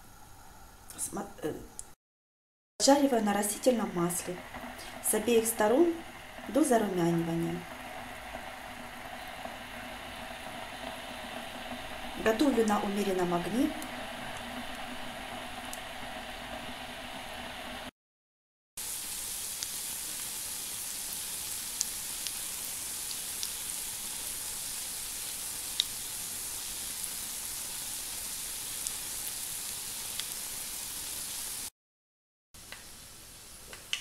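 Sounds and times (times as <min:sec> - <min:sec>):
fritters sizzling in oil: 0:03.0 - 0:17.9, 0:18.8 - 0:31.7
oil pops and crackles: 0:25.7 - 0:26.0.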